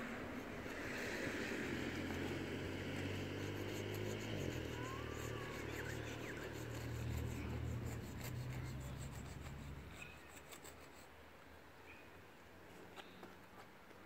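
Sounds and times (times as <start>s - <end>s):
low engine hum: 0.0s - 10.0s
chalk scratching on concrete: 2.9s - 11.1s.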